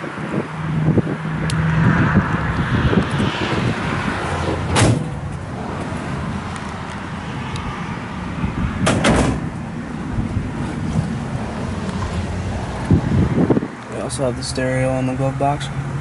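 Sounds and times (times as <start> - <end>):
wind buffeting microphone: 0.0 - 13.9
sharp knock: 4.7 - 5.2, 8.8 - 9.4.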